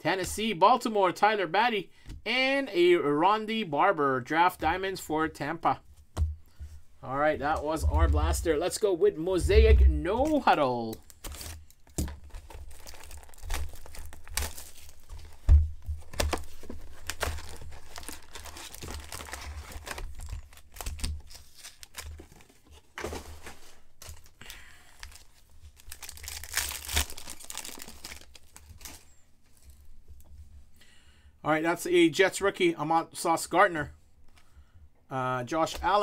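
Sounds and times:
plastic wrapping crinkling: 10.2s - 29.9s.

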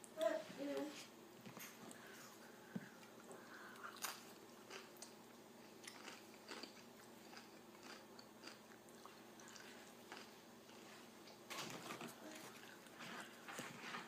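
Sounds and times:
chewing crunchy chips: 3.0s - 13.5s.

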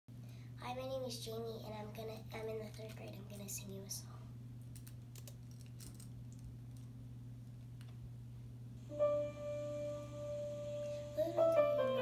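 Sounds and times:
faint room hum: 0.1s - 12.0s
instrumental backing track: 8.9s - 12.0s.

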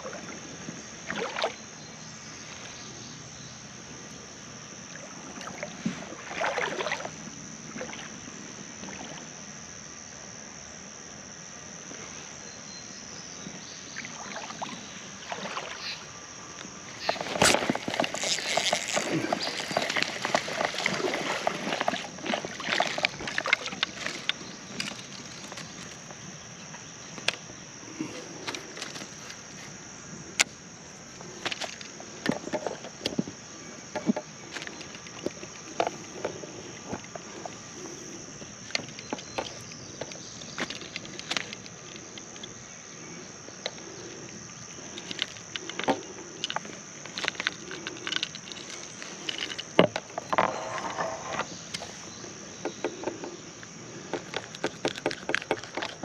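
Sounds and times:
high-pitched insect drone: 0.0s - 56.0s
fish splashing in water: 5.1s - 8.1s, 16.9s - 25.8s.

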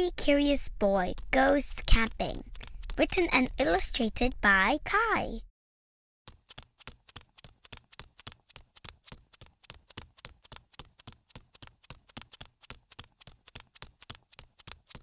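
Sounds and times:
faint quick footsteps: 6.3s - 15.0s.

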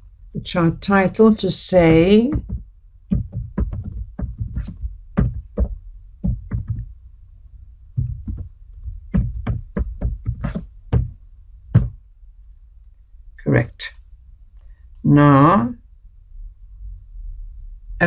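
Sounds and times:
keyboard typing: 1.0s - 6.9s, 8.0s - 11.1s.

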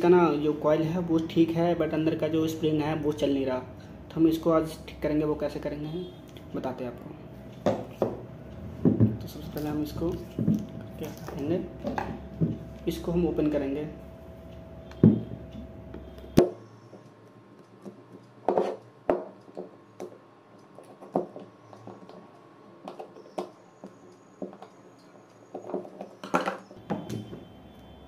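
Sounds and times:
knocks on wooden tabletop: 8.8s - 9.2s.

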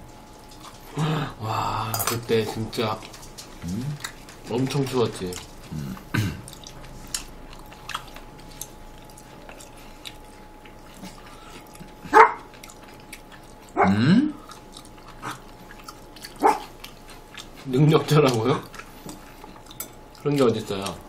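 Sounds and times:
faint chewing clicks: 2.8s - 13.8s, 14.4s - 21.0s
dog barking: 12.1s - 12.5s, 13.8s - 14.0s, 16.4s - 16.7s.

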